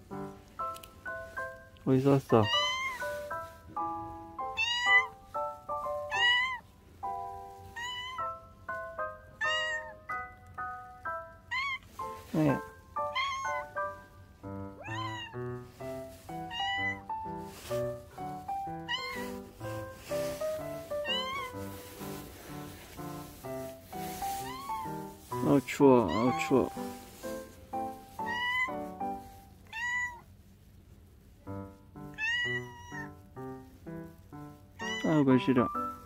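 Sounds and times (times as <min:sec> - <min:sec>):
background music: 0:00.0 - 0:29.5, 0:31.6 - 0:36.0
cat meowing: 0:02.3 - 0:03.2, 0:04.4 - 0:05.3, 0:05.9 - 0:06.6, 0:07.6 - 0:08.5, 0:09.4 - 0:10.1, 0:11.4 - 0:14.0, 0:14.7 - 0:15.6, 0:16.3 - 0:17.5, 0:18.4 - 0:19.8, 0:20.8 - 0:21.8, 0:24.1 - 0:25.2, 0:26.0 - 0:26.8, 0:28.1 - 0:29.0, 0:29.6 - 0:30.3, 0:32.0 - 0:33.3, 0:34.7 - 0:35.8.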